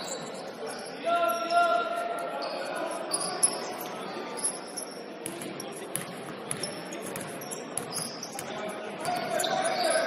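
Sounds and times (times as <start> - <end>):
shoe squeaks: 0.0 - 0.4, 2.4 - 5.1, 6.5 - 10.0
basketball bouncing on court: 5.2 - 9.3.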